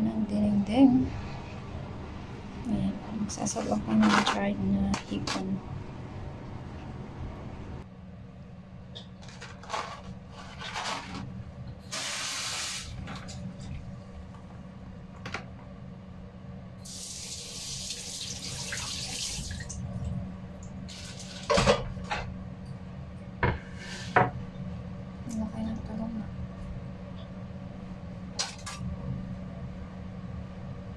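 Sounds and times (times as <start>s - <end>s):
tap water running into sink: 17.1s - 19.8s.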